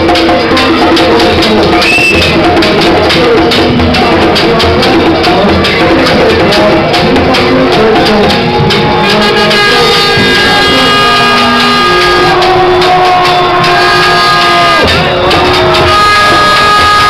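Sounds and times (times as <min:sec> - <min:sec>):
drums beating: 0:00.0 - 0:17.0
long held notes: 0:07.3 - 0:17.0.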